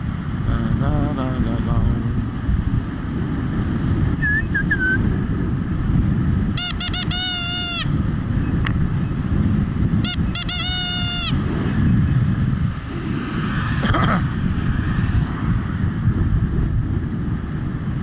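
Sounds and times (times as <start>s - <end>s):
low rumble of wind: 0.0s - 18.0s
horn toots: 6.5s - 8.0s, 10.0s - 11.5s.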